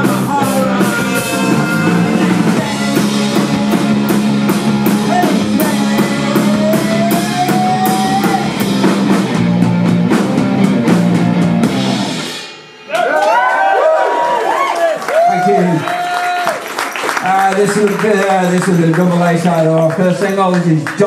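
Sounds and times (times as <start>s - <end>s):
live rock band playing: 0.0s - 13.8s
cymbal and drum hits: 11.0s - 13.9s.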